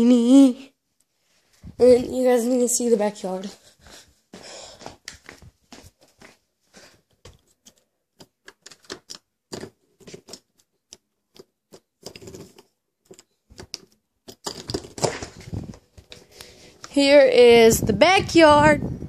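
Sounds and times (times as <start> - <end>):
footsteps: 3.3 - 7.4.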